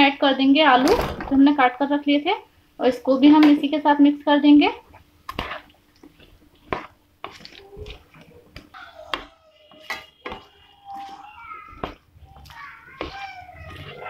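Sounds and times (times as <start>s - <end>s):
spatula scraping a pan: 5.3s - 8.2s.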